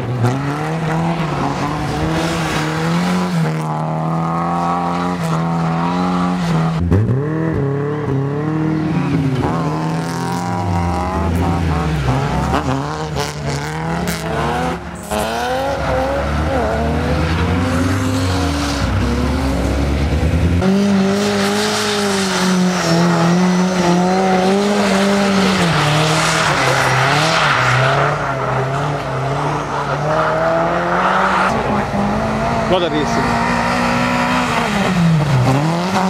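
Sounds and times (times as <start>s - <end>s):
car engines revving: 0.0s - 36.0s.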